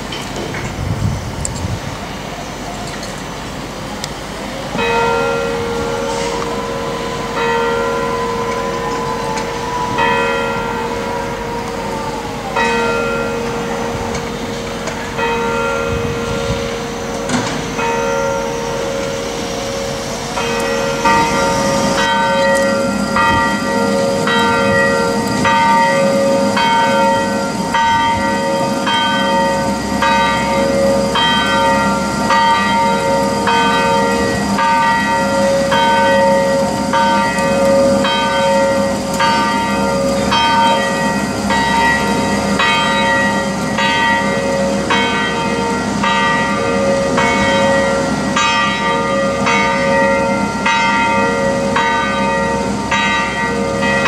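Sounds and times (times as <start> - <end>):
church bells pealing: 0.0 - 0.6, 2.2 - 54.0.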